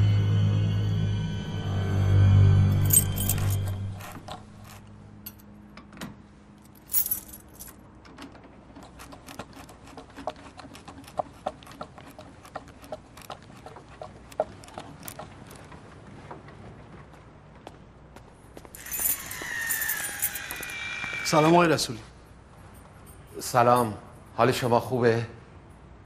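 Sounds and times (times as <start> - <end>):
loose metal parts jingling: 2.7 - 5.4, 6.7 - 7.8, 18.8 - 20.8.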